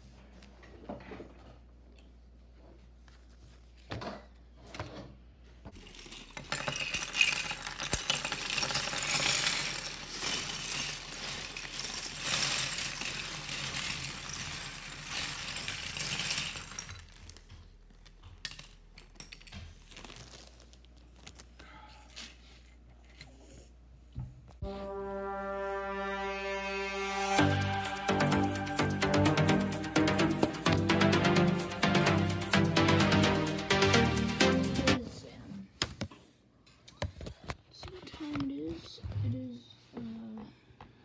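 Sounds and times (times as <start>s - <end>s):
plastic toy bricks clattering: 5.7s - 17.5s.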